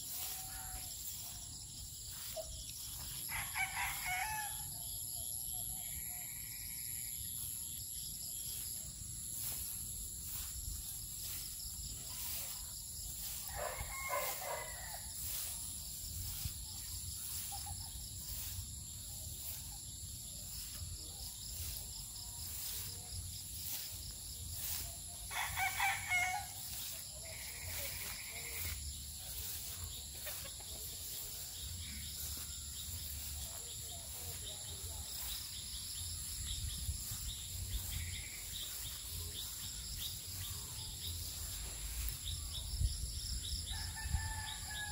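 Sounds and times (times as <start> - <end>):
high-pitched insect chorus: 0.0 - 44.9
rooster crowing: 3.2 - 4.8, 13.3 - 15.4, 25.3 - 26.6, 43.7 - 44.9.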